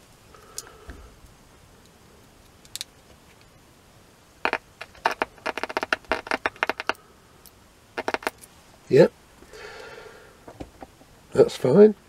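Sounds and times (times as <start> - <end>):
loudspeaker clicking and crackling: 4.4 - 7.0, 8.0 - 8.4.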